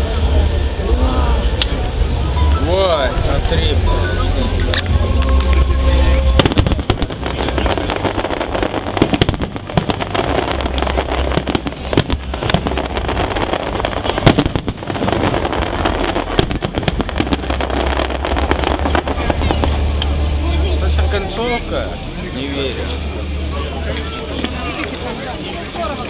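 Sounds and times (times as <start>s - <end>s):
fireworks bangs and crackles: 4.6s - 20.2s
loud firework bang: 6.3s - 19.8s.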